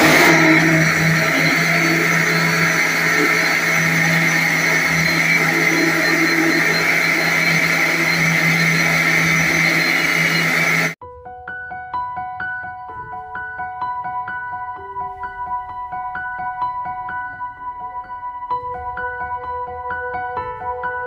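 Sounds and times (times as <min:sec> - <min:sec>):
mixer grinder motor hum: 0:00.0 - 0:11.0.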